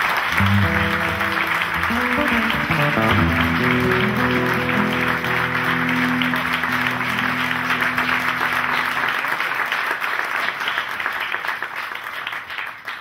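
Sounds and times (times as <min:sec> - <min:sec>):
audience applauding: 0:00.0 - 0:13.0
acoustic guitar chord ringing: 0:00.3 - 0:09.4.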